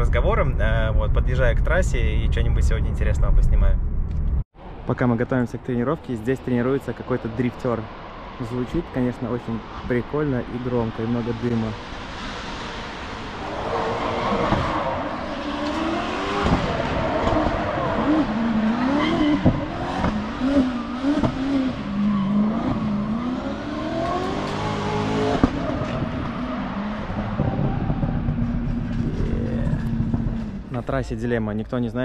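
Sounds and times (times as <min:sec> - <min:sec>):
car engine revving: 0:09.5 - 0:30.8.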